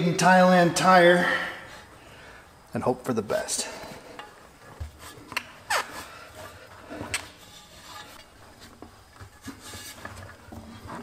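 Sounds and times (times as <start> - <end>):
rubber squeaking against tire: 4.9 - 11.0.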